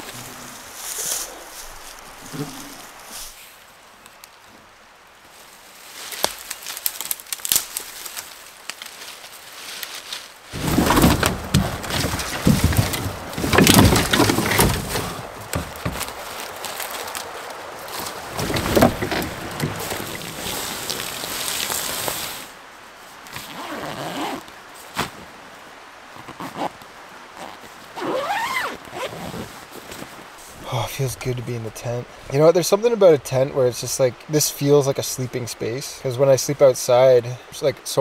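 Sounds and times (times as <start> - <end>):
faint rustling: 5.3 - 25.3
wet coals hissing: 14.9 - 22.6.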